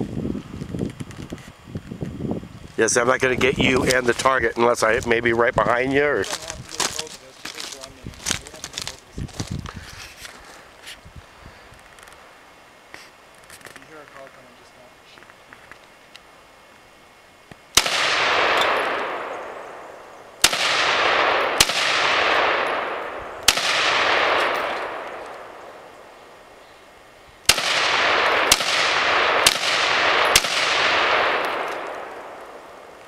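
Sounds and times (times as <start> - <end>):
rifle shots echoing: 17.7 - 26.5, 27.4 - 33.0.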